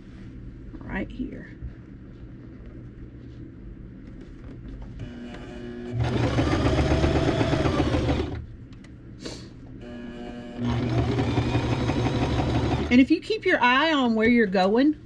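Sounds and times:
sewing machine stitching: 0:05.9 - 0:08.4, 0:10.6 - 0:13.0.

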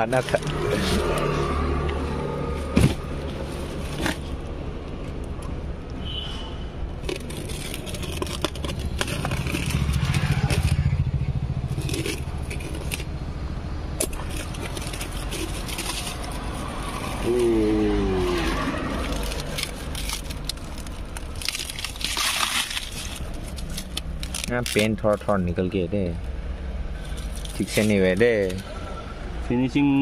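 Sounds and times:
plastic wrap and tape tearing: 0:07.0 - 0:13.1, 0:14.0 - 0:25.5, 0:27.0 - 0:28.6
low steady rumble: 0:07.0 - 0:28.0.

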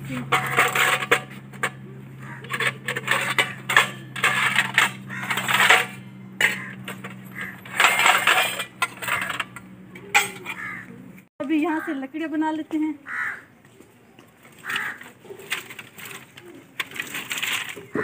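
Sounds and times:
steel utensils clinking and clattering: 0:00.0 - 0:10.8, 0:14.6 - 0:18.0.

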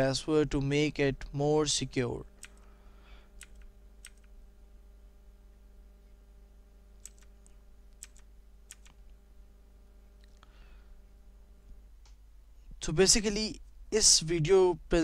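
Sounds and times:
low electrical hum: 0:00.0 - 0:15.0
computer keyboard clicking: 0:03.4 - 0:04.3, 0:07.0 - 0:07.4, 0:08.0 - 0:09.0.

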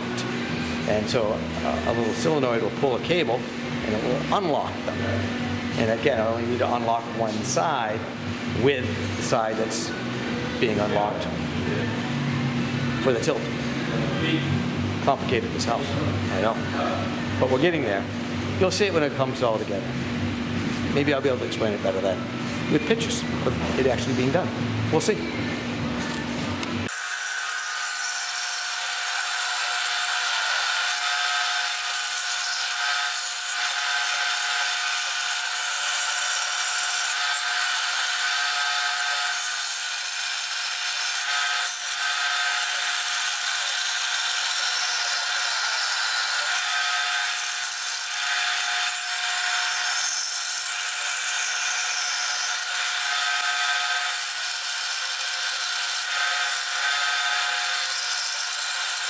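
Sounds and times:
band saw cutting metal: 0:26.8 - 0:59.0.

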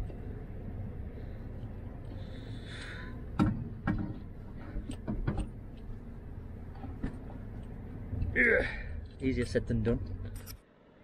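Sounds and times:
low steady rumble: 0:00.0 - 0:11.0
clicks and knocks of plumbing: 0:03.4 - 0:05.5.

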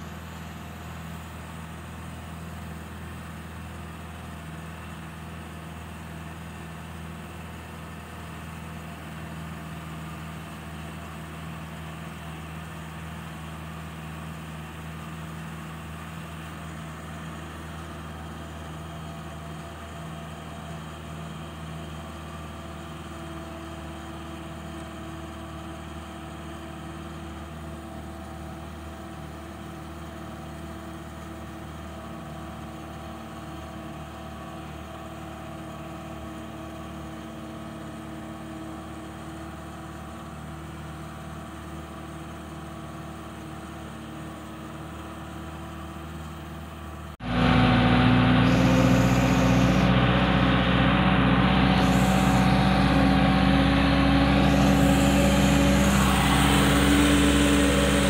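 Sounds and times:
vehicle engine running: 0:00.0 - 0:30.2, 0:34.1 - 0:58.0
road noise: 0:47.2 - 0:58.0.

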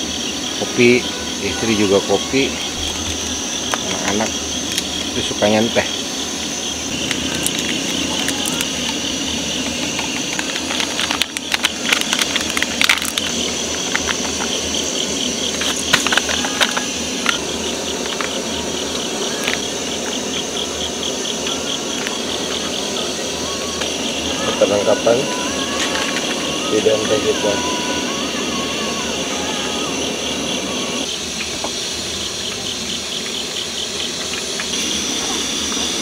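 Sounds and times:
steady background hiss: 0:00.0 - 0:36.0
sachets tearing and crinkling: 0:06.9 - 0:09.0, 0:09.7 - 0:14.6
packets knocking against metal mugs: 0:07.0 - 0:14.8.

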